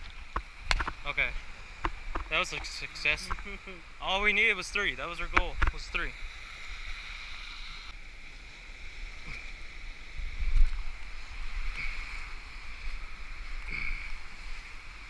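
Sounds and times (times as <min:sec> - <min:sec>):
surf washing on a beach: 0:00.0 - 0:15.0
wind rumbling on microphone: 0:05.0 - 0:15.0.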